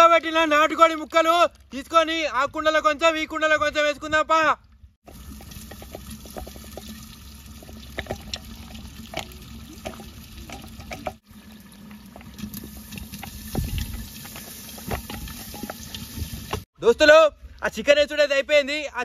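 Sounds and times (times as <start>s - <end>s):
liquid pouring into clay pot: 5.0s - 16.7s
food pieces clicking and splatting: 5.1s - 11.2s.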